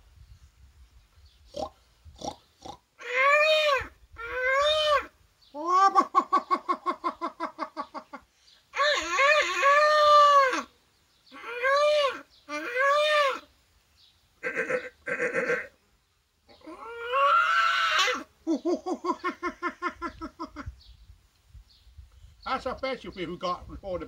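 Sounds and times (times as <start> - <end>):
man imitating animal calls: 1.5 - 8.1, 8.7 - 10.7, 11.3 - 13.5, 14.4 - 15.8, 16.5 - 19.4.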